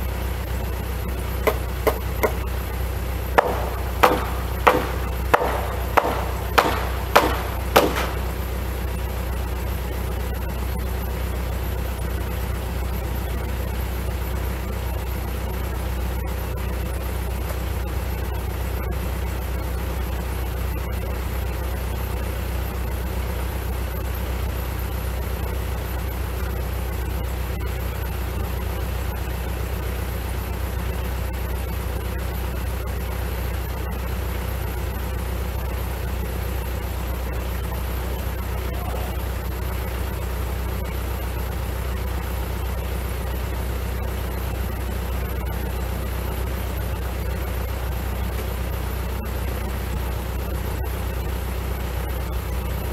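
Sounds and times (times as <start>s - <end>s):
tractor diesel engine idling: 0.0s - 52.9s
hammer blows on wooden beam: 1.5s - 2.5s, 3.4s - 8.4s.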